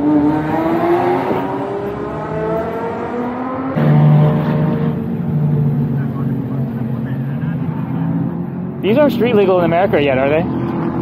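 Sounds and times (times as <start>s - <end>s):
car engine rising in pitch: 0.0s - 9.4s.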